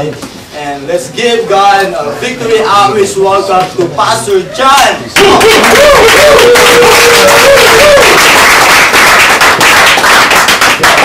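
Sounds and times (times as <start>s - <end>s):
audience applauding and cheering: 5.2s - 11.0s.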